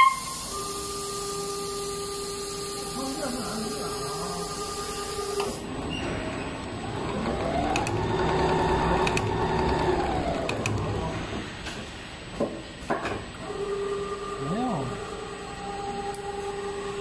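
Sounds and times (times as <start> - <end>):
sewing machine motor whine: 0.0 - 5.6, 6.8 - 11.3.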